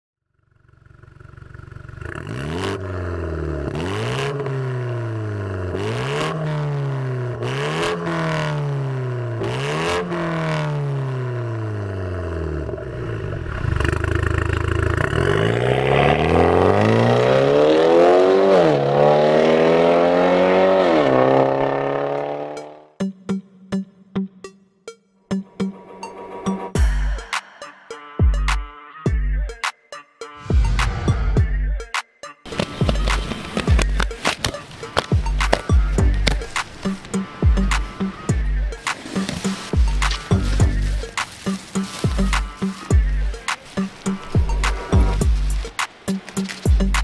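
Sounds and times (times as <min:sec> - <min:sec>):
car engine idling: 0:00.3 - 0:07.6, 0:10.2 - 0:16.0, 0:32.5 - 0:47.0
car engine revving: 0:00.5 - 0:22.9, 0:32.5 - 0:47.0
exhaust pops: 0:32.5 - 0:47.0.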